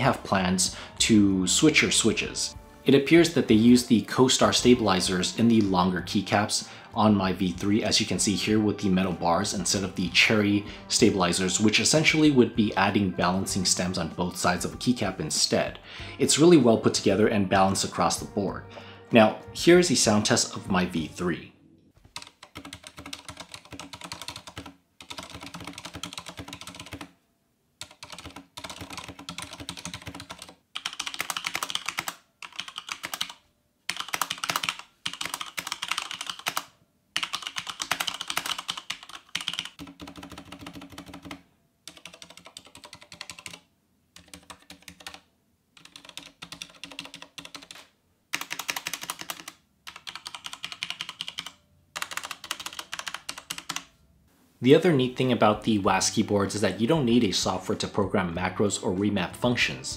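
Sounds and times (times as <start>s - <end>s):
mechanical keyboard typing: 22.1s - 27.1s, 27.8s - 53.9s.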